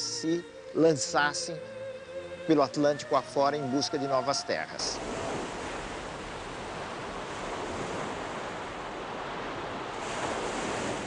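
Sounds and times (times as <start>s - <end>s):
water splashing along wooden hull: 4.8s - 11.0s.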